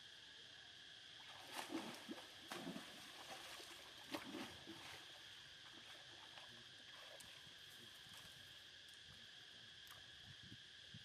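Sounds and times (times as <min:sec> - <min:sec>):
steady high hum: 0:00.0 - 0:11.0
water splashing: 0:01.2 - 0:07.4.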